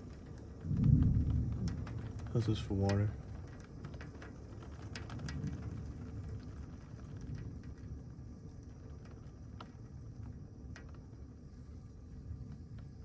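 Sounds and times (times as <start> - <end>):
heavy rain pouring: 0.0 - 13.0
low wind rumble: 0.0 - 13.0.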